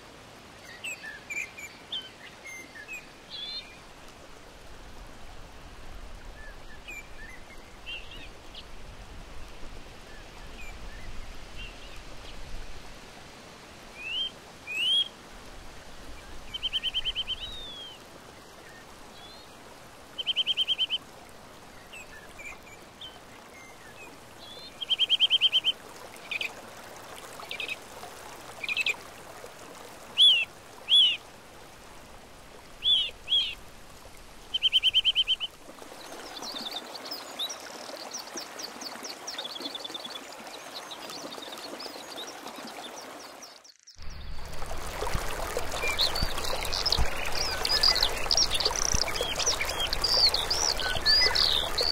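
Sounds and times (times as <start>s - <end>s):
flowing river water: 0.0s - 51.9s
birds calling: 32.8s - 33.6s, 45.2s - 51.9s.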